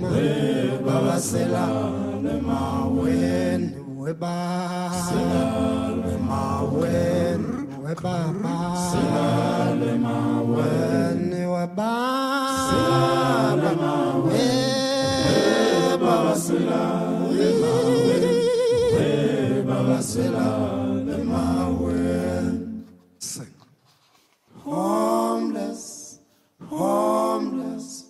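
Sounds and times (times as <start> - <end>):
voices chanting: 0.0 - 3.8, 12.5 - 22.8.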